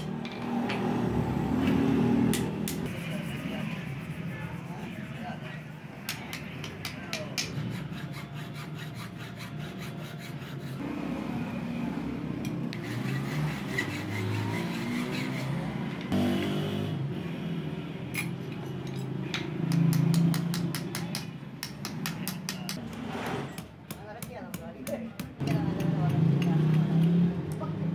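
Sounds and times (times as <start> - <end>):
hand file rasping on metal: 6.3 - 10.8, 12.7 - 16.0.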